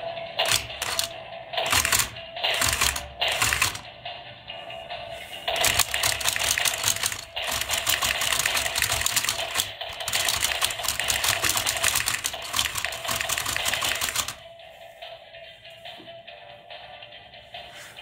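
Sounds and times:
toy robots clattering plastic: 0.4 - 3.9, 5.5 - 14.4.

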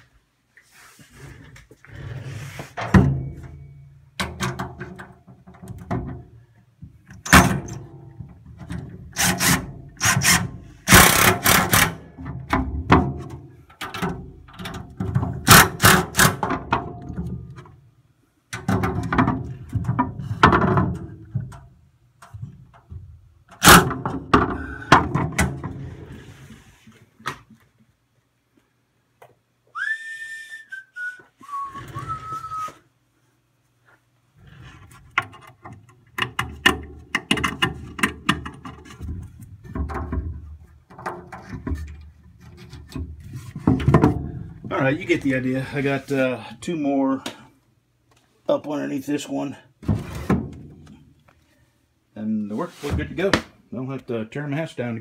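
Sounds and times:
cordless drill driving screws: 9.2 - 11.8.

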